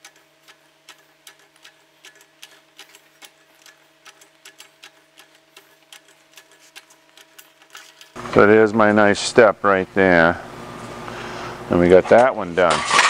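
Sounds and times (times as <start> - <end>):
bead roller clicking: 0.0 - 8.2
steady low hum: 0.0 - 13.0.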